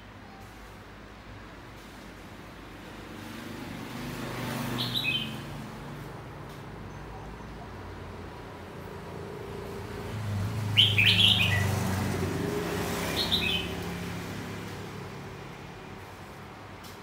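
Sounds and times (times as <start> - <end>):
passing vehicle rumble: 2.4 - 16.8
bird singing: 4.7 - 5.5, 10.8 - 11.8, 13.0 - 13.8.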